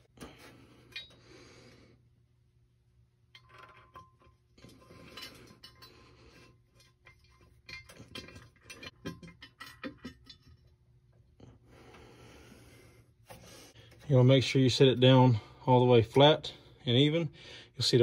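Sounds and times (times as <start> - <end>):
metallic clinks and scrapes of bolts: 3.4 - 10.5.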